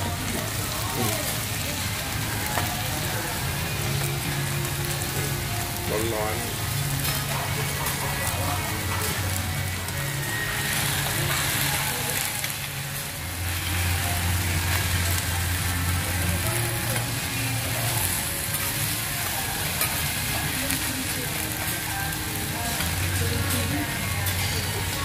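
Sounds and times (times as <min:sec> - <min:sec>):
noodles sizzling on a griddle: 0:00.0 - 0:25.0.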